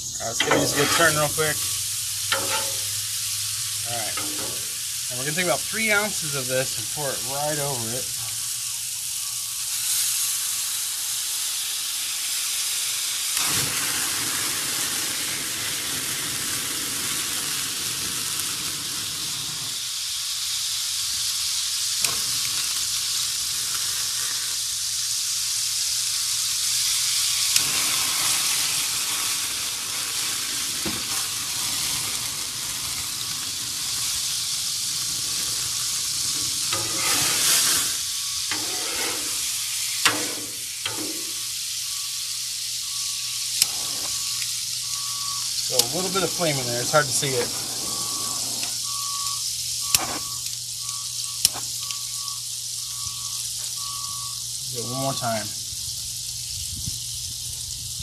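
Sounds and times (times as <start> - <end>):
food sizzling on a griddle: 0.0 - 58.0
liquid boiling off in steam: 0.0 - 58.0.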